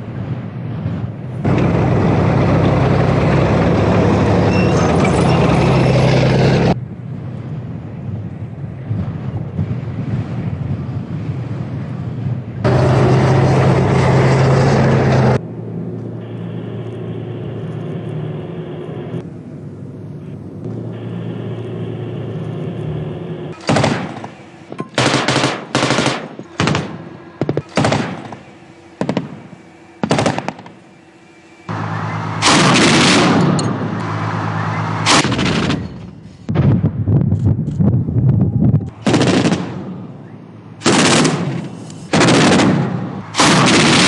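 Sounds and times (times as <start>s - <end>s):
armoured vehicle engines running: 0.0s - 44.0s
machine-gun fire: 23.6s - 30.8s, 32.4s - 33.6s, 39.0s - 40.0s, 40.8s - 44.0s.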